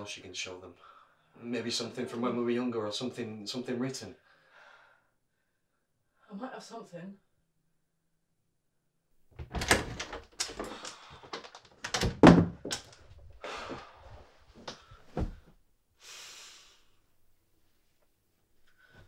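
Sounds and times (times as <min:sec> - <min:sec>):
objects knocking and thudding: 0:09.3 - 0:13.8, 0:14.6 - 0:15.6.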